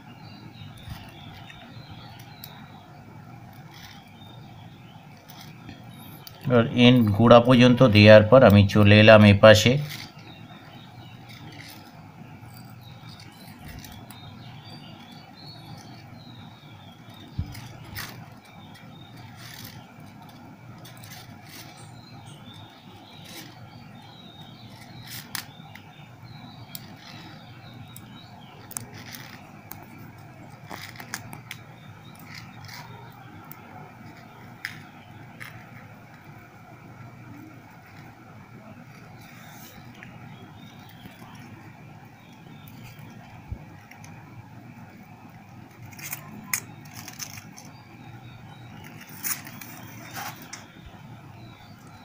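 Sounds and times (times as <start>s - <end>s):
steady low hum: 0.0s - 52.0s
small handling clicks and scrapes: 3.5s - 4.2s, 5.1s - 6.5s, 9.8s - 16.2s, 16.9s - 21.9s, 22.5s - 23.8s, 24.6s - 25.9s, 26.6s - 36.3s, 45.5s - 47.8s, 48.7s - 50.8s.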